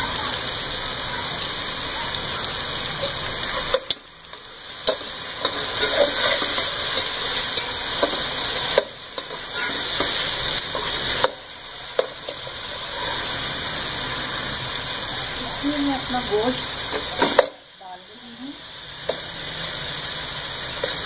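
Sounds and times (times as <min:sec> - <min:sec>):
hot oil sizzling and bubbling: 0:00.0 - 0:21.0
metal spatula scraping pot: 0:04.8 - 0:11.3.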